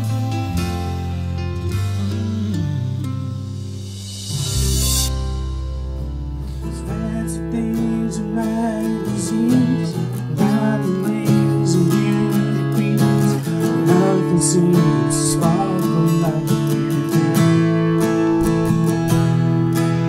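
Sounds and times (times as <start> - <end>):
acoustic guitar strumming chords: 0.0 - 20.0.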